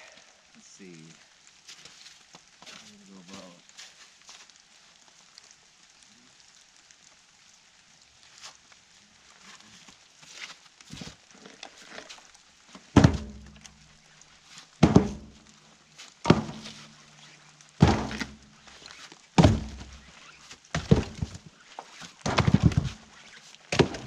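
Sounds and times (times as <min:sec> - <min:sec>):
firewood thunking into trailer: 0:12.9 - 0:13.7, 0:14.8 - 0:15.4, 0:16.2 - 0:16.9, 0:17.8 - 0:18.4, 0:19.4 - 0:20.1, 0:20.7 - 0:21.4, 0:22.2 - 0:23.1, 0:23.7 - 0:24.0.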